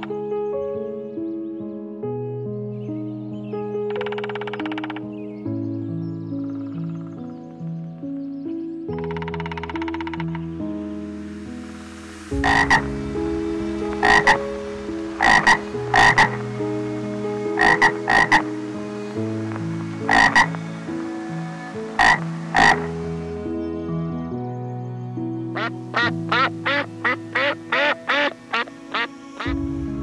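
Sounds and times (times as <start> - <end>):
tree frog croaking: 3.9 - 5.1, 9.0 - 10.5, 12.4 - 12.9, 13.9 - 16.4, 17.5 - 18.6, 19.4 - 20.7, 21.9 - 22.9, 25.6 - 29.1.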